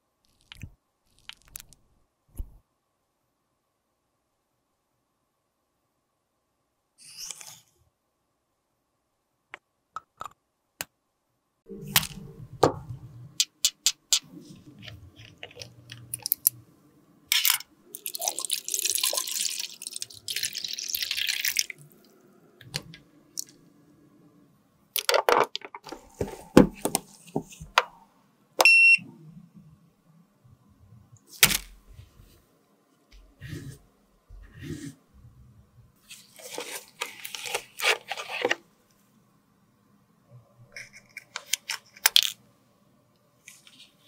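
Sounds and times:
liquid pouring with hissing splash: 0:18.0 - 0:22.0
short electronic beep: 0:28.6 - 0:29.0.

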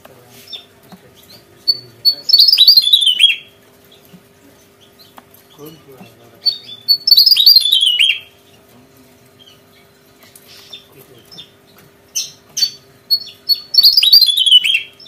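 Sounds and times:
bird singing high notes: 0:01.7 - 0:03.6, 0:06.4 - 0:08.4, 0:12.2 - 0:15.0.

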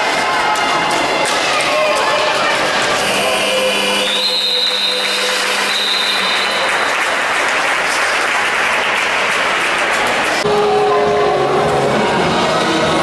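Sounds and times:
spectators applauding: 0:01.6 - 0:10.5.

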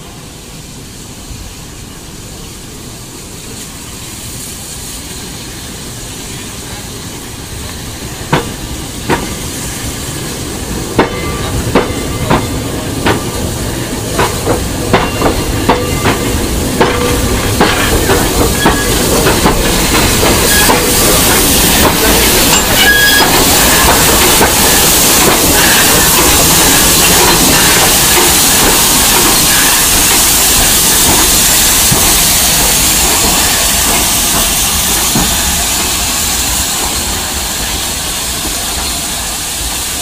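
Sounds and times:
steam hissing: 0:00.0 - 0:40.0
train wheels knocking: 0:08.2 - 0:09.4, 0:10.7 - 0:40.0.

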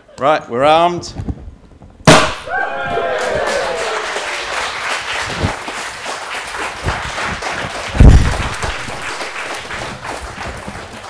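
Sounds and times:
audience applauding: 0:02.7 - 0:11.0
loud low thump: 0:08.0 - 0:09.2.

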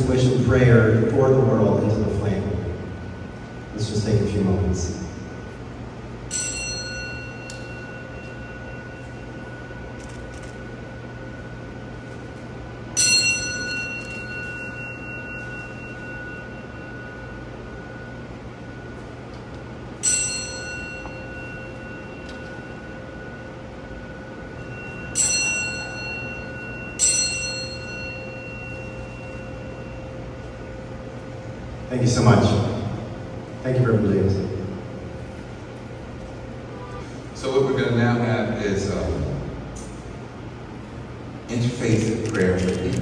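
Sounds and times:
bell struck and ringing: 0:06.2 - 0:12.1, 0:12.9 - 0:19.0, 0:19.9 - 0:31.5.

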